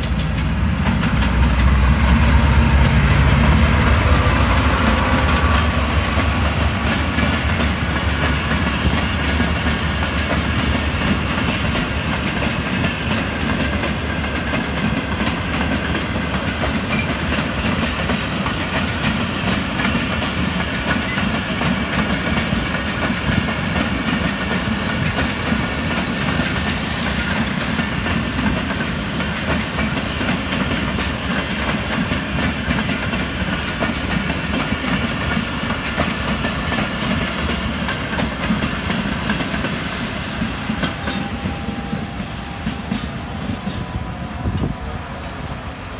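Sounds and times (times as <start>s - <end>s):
train wheels rushing on rails: 0.0s - 45.9s
wheels clacking over rail joints: 0.0s - 45.9s.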